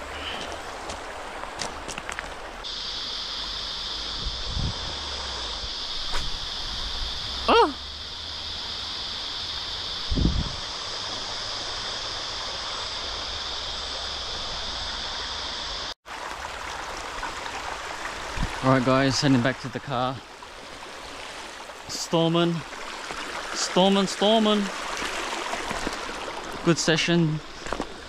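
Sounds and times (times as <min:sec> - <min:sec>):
creek water running over rocks: 0:00.0 - 0:03.0, 0:16.0 - 0:28.0.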